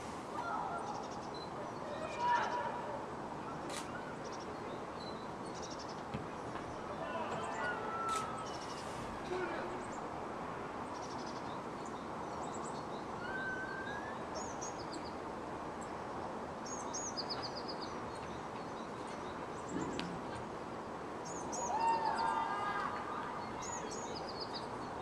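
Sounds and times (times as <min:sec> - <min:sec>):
city background hum: 0:00.0 - 0:25.0
small birds chirping: 0:03.4 - 0:10.1, 0:10.8 - 0:22.3, 0:23.2 - 0:25.0.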